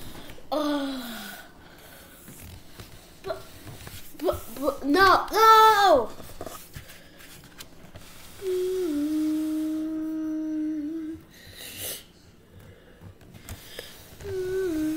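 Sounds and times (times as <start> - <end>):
boy humming low note: 8.4 - 11.4, 14.2 - 14.9.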